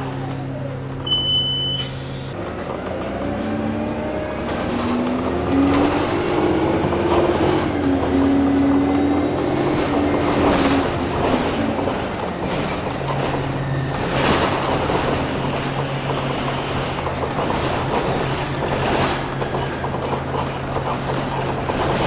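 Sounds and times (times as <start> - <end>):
bus drive whine: 0.0 - 22.0
engine and road noise: 0.0 - 22.0
short high beep: 1.0 - 2.0.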